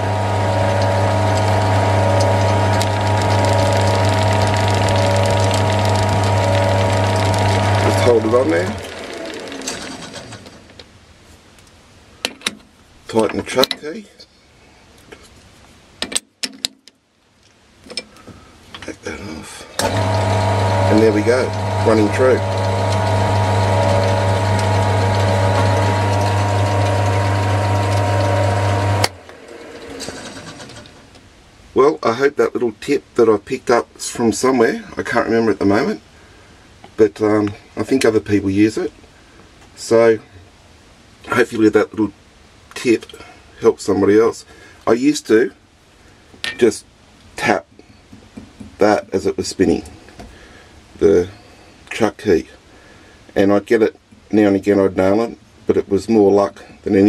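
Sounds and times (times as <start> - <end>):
metal lathe humming and whining: 0.0 - 10.5, 19.8 - 30.9.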